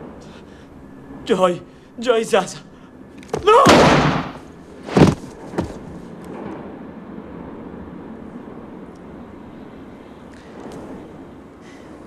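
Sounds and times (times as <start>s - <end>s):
handgun shots: 3.7s - 4.4s.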